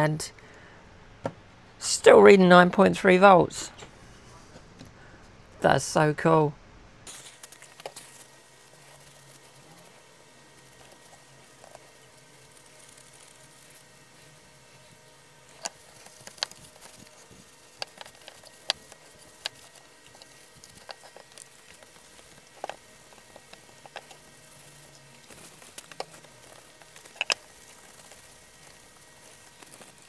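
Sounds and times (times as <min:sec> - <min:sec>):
paper towel rubbing: 0:07.2 - 0:30.0.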